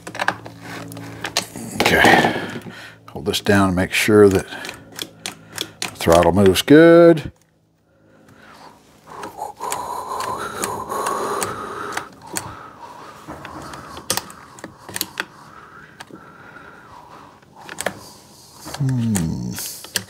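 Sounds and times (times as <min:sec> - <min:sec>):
chainsaw throttle linkage clicking: 0:04.0 - 0:06.8, 0:13.4 - 0:15.3, 0:17.6 - 0:18.0, 0:18.6 - 0:20.0.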